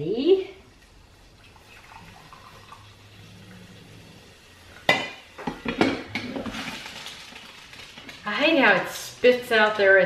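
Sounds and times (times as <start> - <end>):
glass carafe clank: 4.9 - 6.1.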